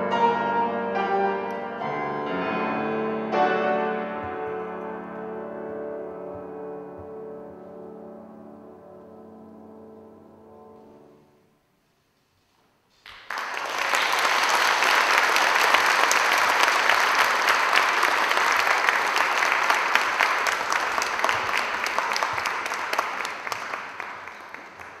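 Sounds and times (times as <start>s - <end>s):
audience applauding: 13.0s - 25.0s.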